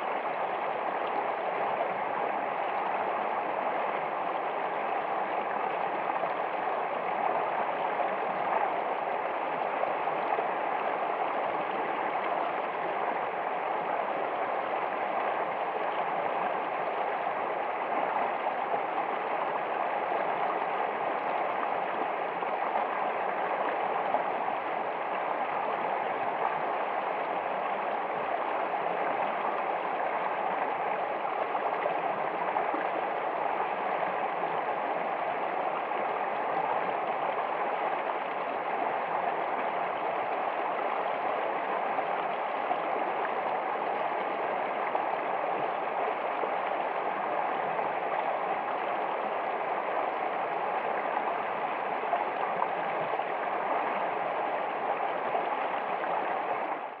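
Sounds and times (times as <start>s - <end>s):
stream rushing over rocks: 0.0s - 57.0s.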